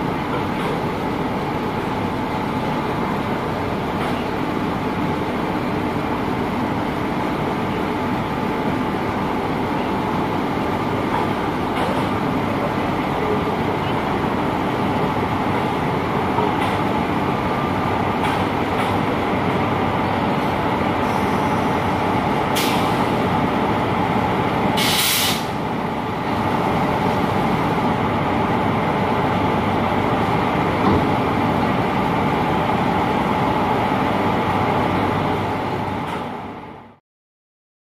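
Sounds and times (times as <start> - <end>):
hiss of released air: 22.6 - 23.1, 24.8 - 25.6.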